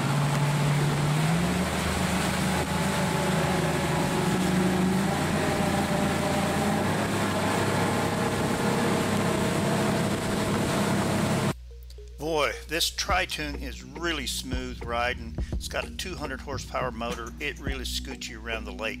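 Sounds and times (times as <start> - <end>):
outboard motor running: 0.0 - 11.6
wake water rushing: 0.0 - 11.6.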